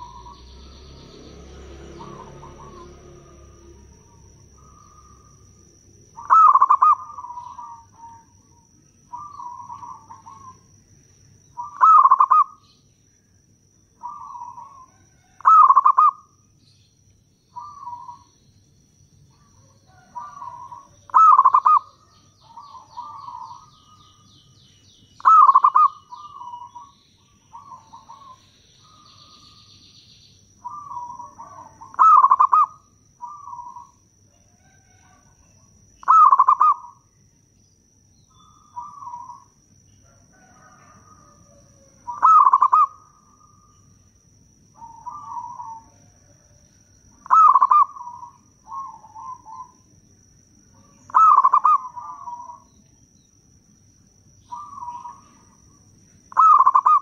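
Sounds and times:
dove cooing: 0.0 - 1.1, 1.8 - 10.7, 11.6 - 12.7, 14.0 - 16.3, 17.5 - 18.4, 19.3 - 24.2, 25.2 - 29.6, 30.6 - 37.1, 38.3 - 43.8, 44.8 - 49.8, 50.8 - 52.7, 54.5 - 57.0.

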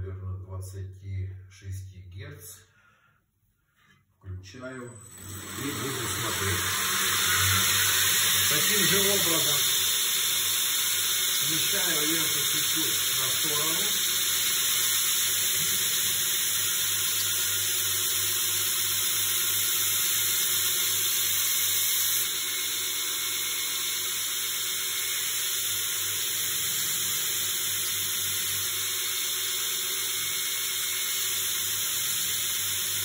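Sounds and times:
knife grinding on belt grinder: 5.1 - 10.2.

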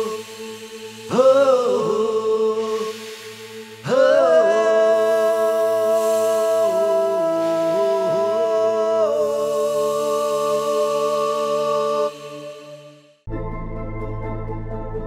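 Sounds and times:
sustained chord music: 13.3 - 15.0.

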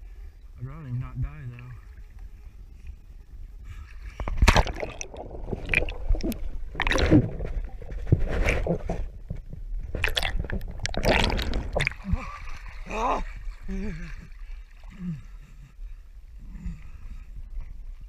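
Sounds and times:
pool water sloshing and gurgling: 3.9 - 15.7
water splashes: 4.1 - 9.2, 9.8 - 15.1.

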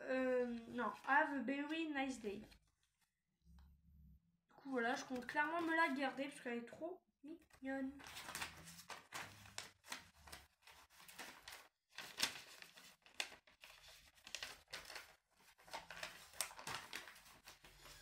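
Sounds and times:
paper crinkling and rustling: 8.0 - 18.0.

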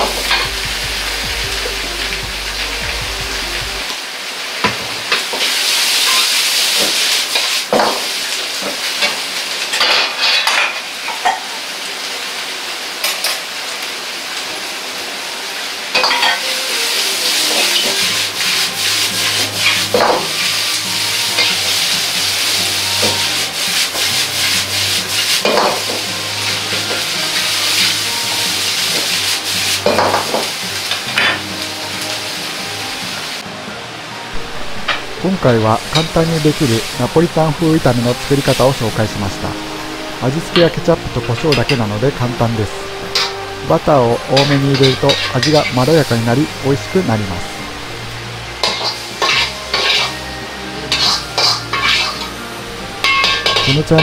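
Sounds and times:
low hum: 0.0 - 3.9, 34.3 - 41.4
food sizzling in a wok: 0.0 - 54.0
metal ladle scraping a wok: 17.4 - 26.0, 42.8 - 46.1, 48.6 - 50.2, 50.9 - 53.9.

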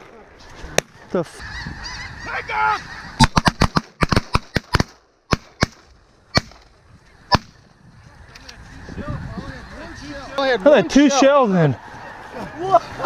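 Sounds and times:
shotgun shots: 3.2 - 5.8.

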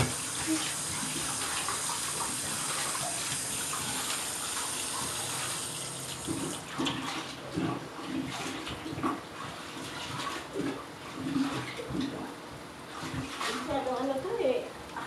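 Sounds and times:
tap running into sink: 0.0 - 7.0.

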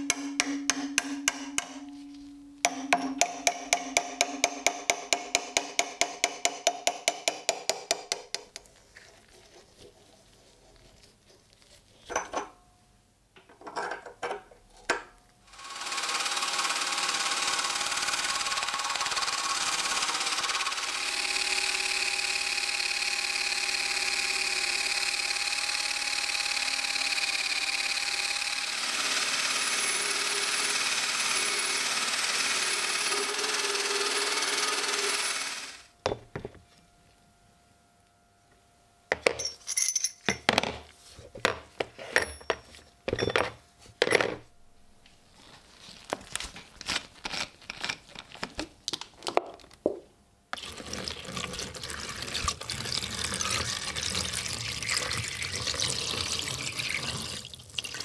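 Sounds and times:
drill with wire brush scouring metal: 15.5 - 35.9.

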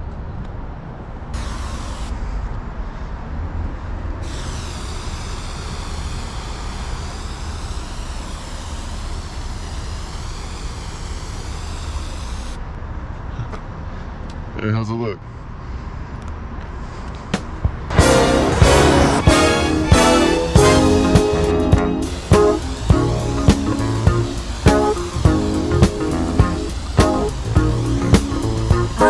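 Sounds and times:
spray paint can hissing: 1.4 - 2.2, 4.2 - 12.6, 17.9 - 29.0
steady low rumble: 16.7 - 29.0.

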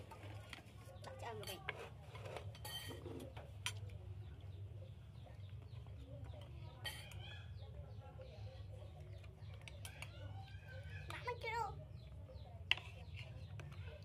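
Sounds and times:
spoons clinking on ceramic plates: 1.3 - 3.8, 6.8 - 7.2.

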